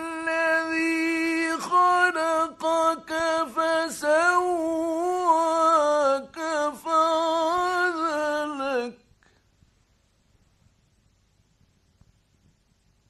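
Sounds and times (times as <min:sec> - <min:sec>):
man reciting melodically: 0:00.0 - 0:09.1.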